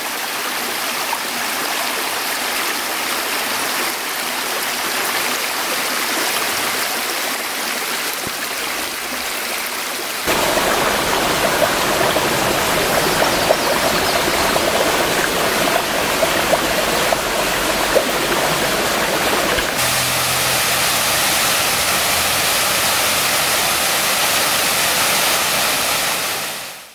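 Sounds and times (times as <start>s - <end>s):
stream flowing over rocks: 0.0s - 26.9s
waterfall pouring into pool: 0.0s - 26.9s.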